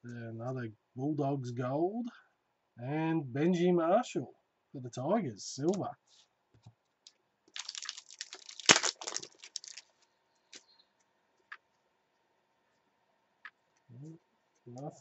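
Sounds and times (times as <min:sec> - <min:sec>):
sharp wrapper crack: 0:07.0 - 0:10.6
wrapper crinkling as torn: 0:07.5 - 0:10.0.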